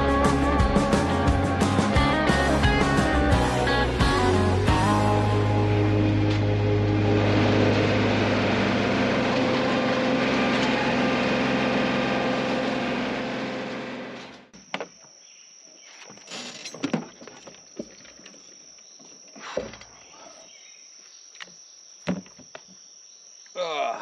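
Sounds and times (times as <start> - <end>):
tractor engine shutting off: 0.0 - 14.5
high insect drone: 14.6 - 24.0.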